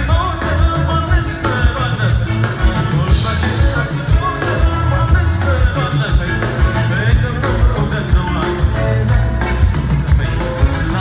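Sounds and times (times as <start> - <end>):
drum kit beat: 0.0 - 11.0
live band playing: 0.0 - 11.0
man singing lead vocal: 0.0 - 11.0.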